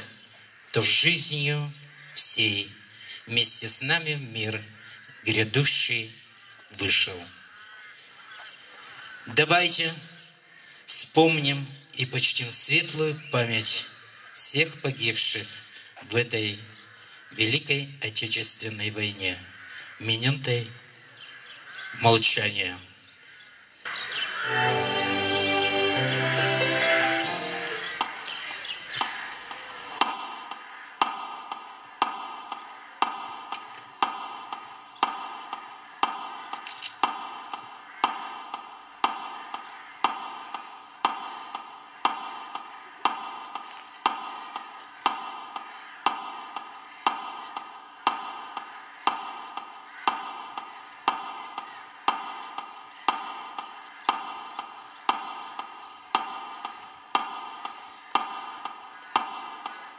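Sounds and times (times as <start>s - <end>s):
metronome ticking over loudspeaker: 29.0s - 59.9s.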